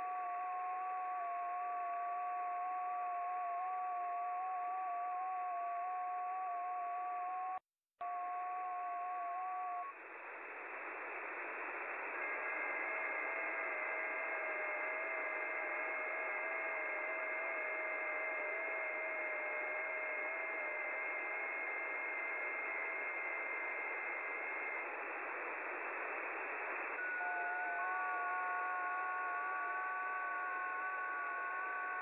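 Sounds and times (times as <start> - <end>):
radio hiss: 9.4 - 32.0.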